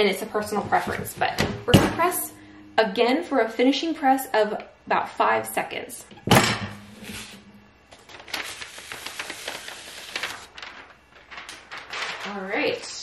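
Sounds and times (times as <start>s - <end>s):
parchment paper rustling: 0.2s - 1.4s, 7.0s - 13.0s.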